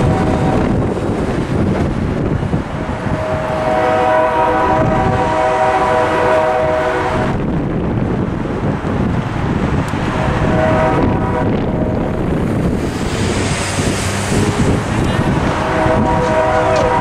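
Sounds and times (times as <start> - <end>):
road traffic passing: 0.0 - 17.0
locomotive air horn chord: 3.0 - 7.4, 10.1 - 12.0, 15.5 - 17.0.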